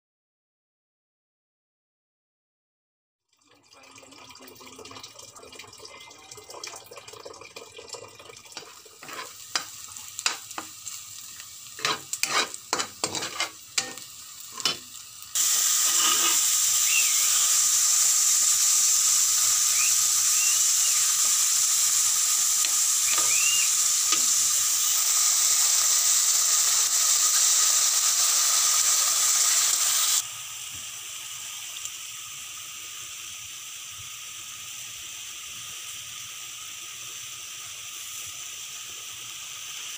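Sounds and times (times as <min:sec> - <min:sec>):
meat sizzling in wok: 0:08.2 - 0:39.9
utensils clinking in pot: 0:08.5 - 0:10.7, 0:11.8 - 0:14.9
metal spatula stirring: 0:08.6 - 0:10.7, 0:11.7 - 0:14.9, 0:15.8 - 0:16.5.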